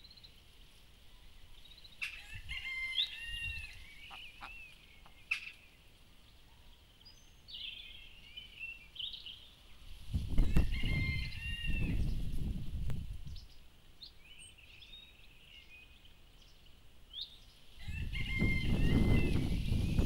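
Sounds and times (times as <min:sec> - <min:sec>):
chickens calling: 0:01.9 - 0:05.7, 0:17.8 - 0:19.7.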